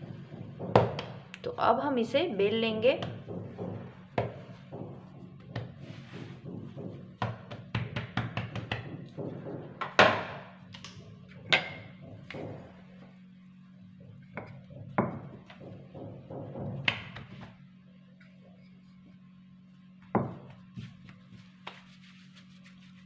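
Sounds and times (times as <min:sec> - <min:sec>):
rolling pin knocking on counter: 0:00.0 - 0:01.2, 0:02.7 - 0:10.5, 0:11.4 - 0:12.8, 0:14.3 - 0:17.6, 0:20.0 - 0:20.6
hands patting dough on stone: 0:00.0 - 0:01.4, 0:02.5 - 0:13.1, 0:14.1 - 0:17.6, 0:20.0 - 0:23.0
steady low hum: 0:00.0 - 0:23.0.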